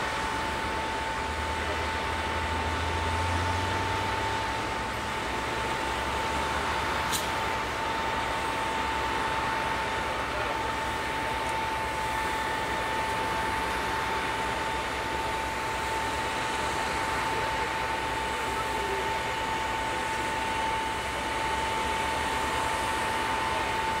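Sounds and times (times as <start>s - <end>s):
constant high whine: 0.0s - 24.0s
motorway traffic: 0.0s - 24.0s.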